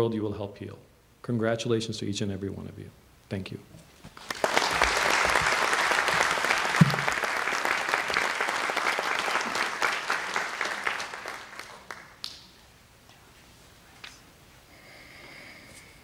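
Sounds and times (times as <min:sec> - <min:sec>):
audience applauding: 0:04.2 - 0:12.4.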